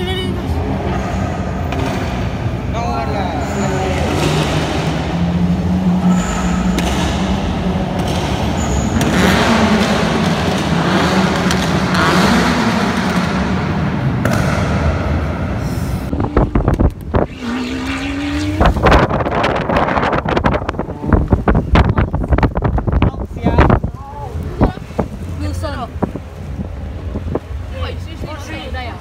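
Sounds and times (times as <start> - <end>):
sports car engine: 0.0 - 29.0
wind buffeting microphone: 16.1 - 28.4.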